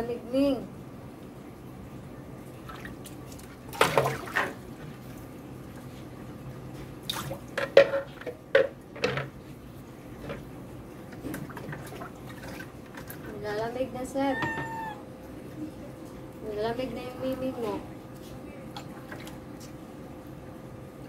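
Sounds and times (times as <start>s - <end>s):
water splashing into sink: 2.6s - 4.7s, 7.0s - 9.3s, 11.1s - 13.4s.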